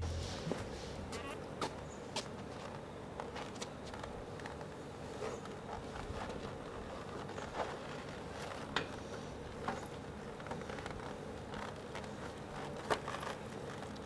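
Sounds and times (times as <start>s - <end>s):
faint steady hum: 0.0s - 14.0s
plastic wrap crinkling: 2.4s - 14.0s.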